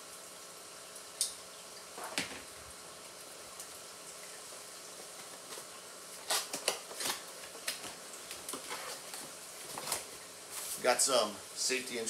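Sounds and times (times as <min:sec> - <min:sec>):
faint steady hiss: 0:00.0 - 0:12.0
paper and cardboard rustling: 0:05.3 - 0:11.0.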